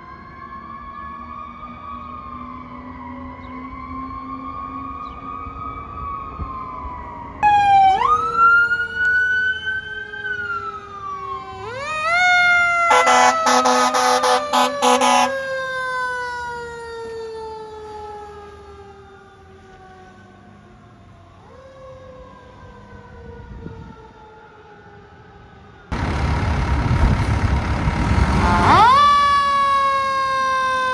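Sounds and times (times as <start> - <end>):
fire engine siren wailing: 0.0 - 30.9
air horn blasts: 12.9 - 15.4, 28.2 - 29.1.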